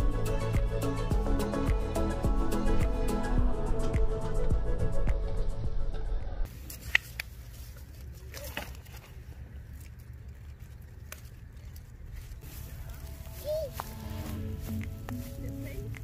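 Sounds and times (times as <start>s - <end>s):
background music: 0.0s - 6.5s, 12.5s - 16.0s
plant canes clicking and rustling: 6.5s - 16.0s.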